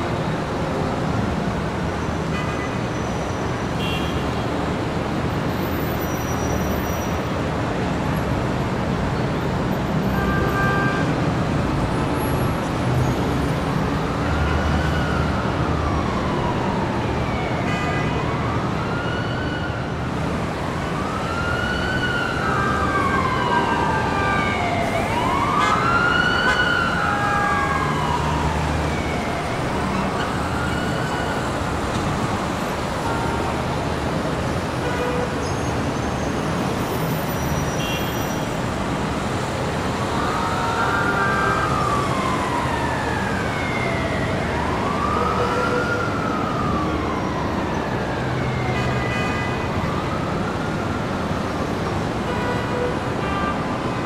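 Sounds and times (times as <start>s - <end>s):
city traffic: 0.0s - 54.0s
siren wailing: 14.2s - 33.9s, 39.8s - 52.2s.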